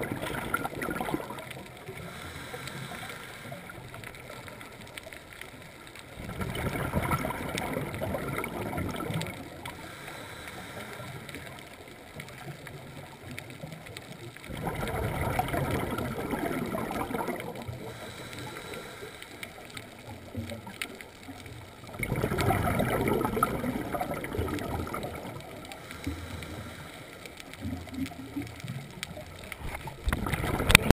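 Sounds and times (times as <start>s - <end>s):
exhaled bubbles underwater: 0.0s - 30.9s.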